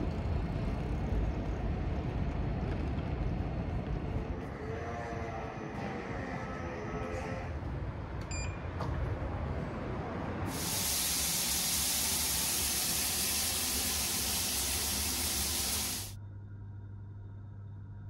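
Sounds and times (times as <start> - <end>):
shower water hissing on tiles: 10.5 - 16.2.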